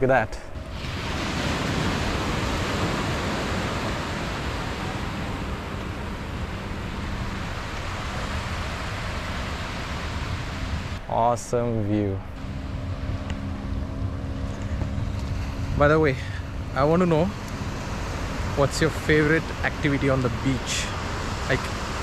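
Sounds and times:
waves breaking on sandy beach: 0:00.5 - 0:11.6, 0:12.3 - 0:22.0.

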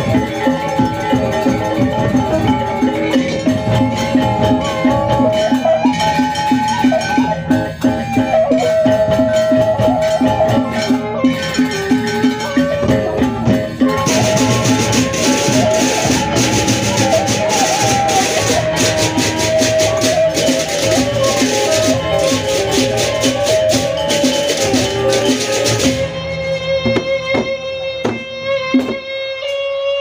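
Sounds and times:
steady drum beat: 0:00.0 - 0:29.1.

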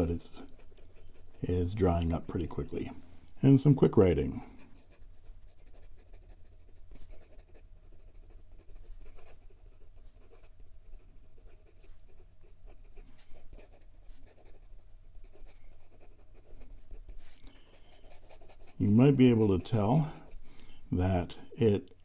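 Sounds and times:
pen nib scratching paper: 0:00.2 - 0:02.2, 0:04.4 - 0:20.8.

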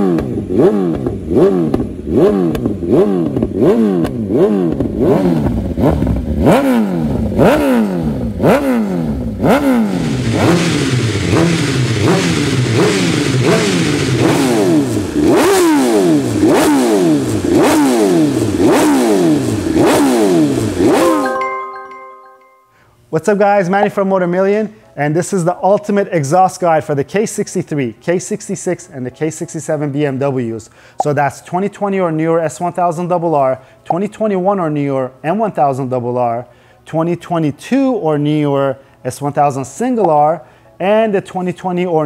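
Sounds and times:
motorcycle engine revving: 0:00.0 - 0:21.2.

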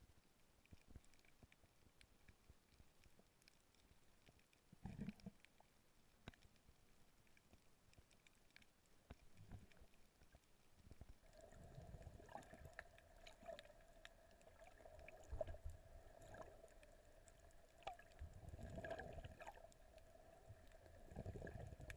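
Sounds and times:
faint steady hum: 0:00.0 - 0:21.9
low underwater rumbles: 0:09.2 - 0:21.9.

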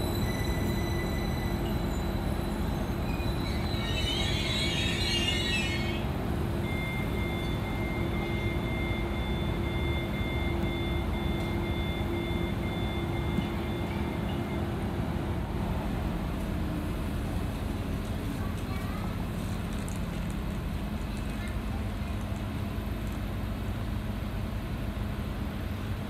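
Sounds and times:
train metallic screech: 0:00.0 - 0:06.2
two-tone high-pitched squeal: 0:00.0 - 0:14.7.

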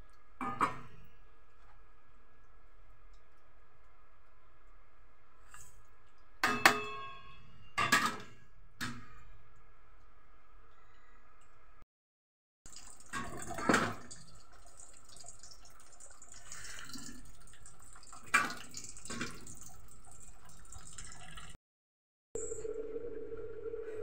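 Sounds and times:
broth bubbling in metal pot: 0:12.7 - 0:21.6.

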